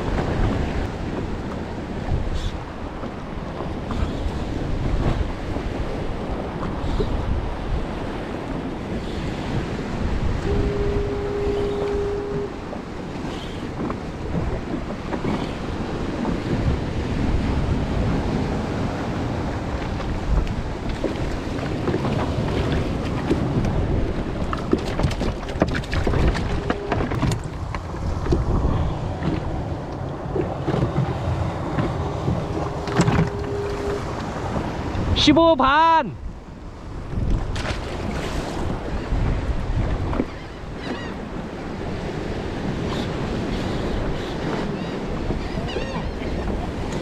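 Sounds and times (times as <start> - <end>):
wind buffeting microphone: 0.0 - 35.4, 36.2 - 47.0
sea surf splashing: 0.0 - 47.0.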